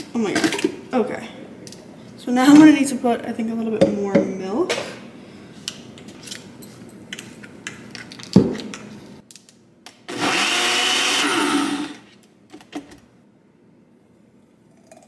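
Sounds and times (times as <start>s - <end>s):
blender running: 10.1s - 12.1s.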